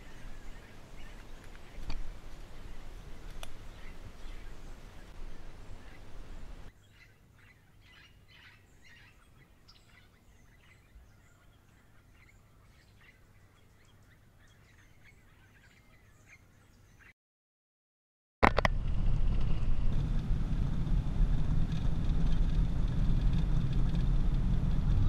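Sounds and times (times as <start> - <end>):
small birds chirping: 0.0 - 17.2.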